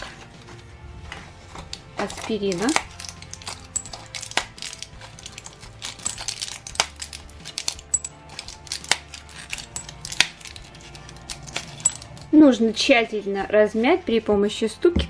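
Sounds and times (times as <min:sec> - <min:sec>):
foil blister pack crackling: 0:01.6 - 0:12.3
tablets clicking into glass bowl: 0:01.6 - 0:12.3.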